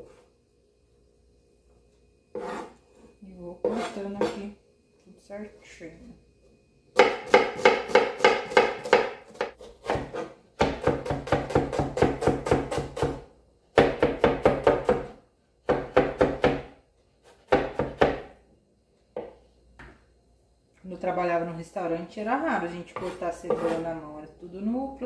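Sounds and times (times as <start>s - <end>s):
knife chopping on cutting board: 2.3s - 2.7s, 3.6s - 4.4s, 7.0s - 13.2s, 13.8s - 18.3s, 22.9s - 23.8s.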